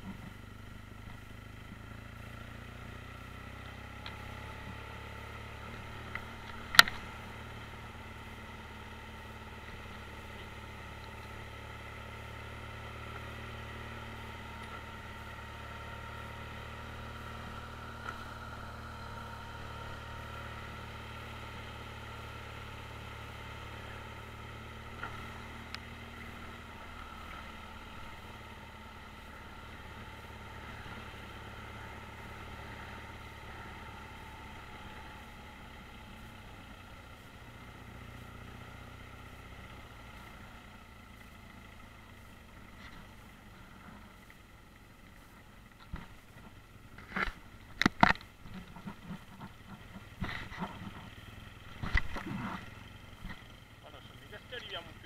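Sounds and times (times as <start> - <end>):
motorcycle engine running: 0.0 - 55.0
light ticks: 3.6 - 4.2, 25.0 - 25.9.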